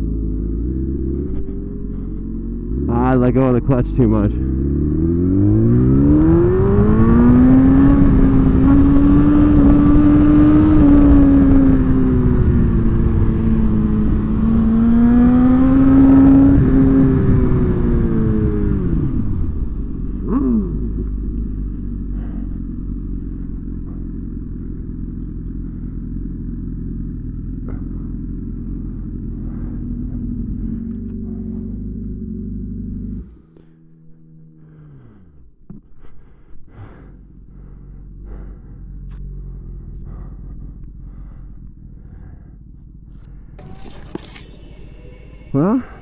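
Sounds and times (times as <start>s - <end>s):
motorcycle engine revving: 0.0s - 46.0s
falling whine: 38.3s - 46.0s.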